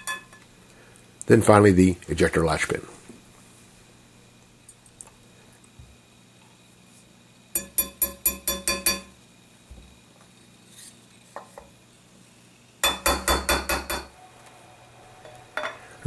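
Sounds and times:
small hammer tapping metal: 0:00.0 - 0:00.4, 0:07.6 - 0:09.2, 0:12.8 - 0:14.1.

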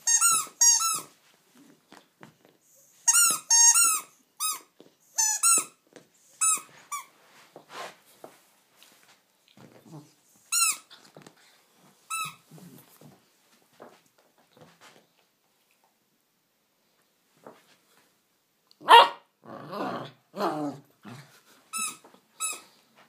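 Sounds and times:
squeaky dog toy squeaking: 0:00.0 - 0:01.1, 0:03.0 - 0:05.8, 0:06.4 - 0:07.1, 0:10.5 - 0:10.9, 0:12.1 - 0:12.5, 0:21.7 - 0:22.7
dog chewing and shuffling: 0:00.0 - 0:16.1.

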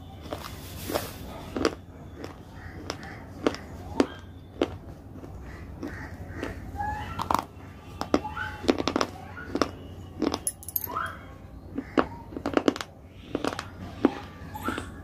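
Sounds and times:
person chewing crunchy food: 0:00.4 - 0:07.3.

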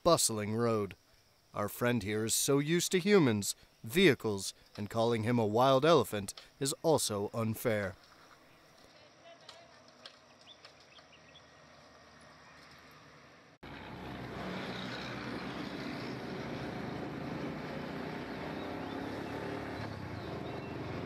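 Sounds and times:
faint outdoor background: 0:00.0 - 0:21.0
bus engine droning: 0:11.7 - 0:21.0.

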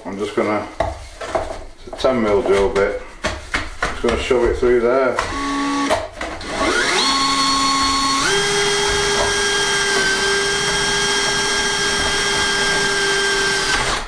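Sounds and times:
power drill boring into wood: 0:05.2 - 0:14.0.

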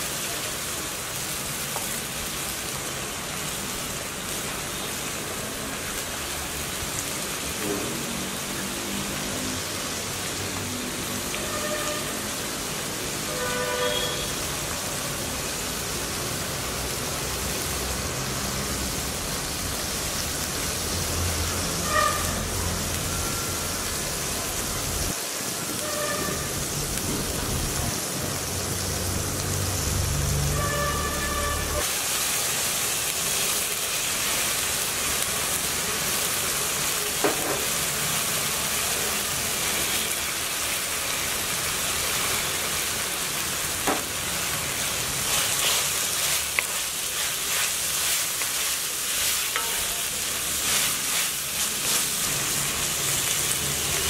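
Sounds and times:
oil sizzling: 0:00.0 - 0:54.0.

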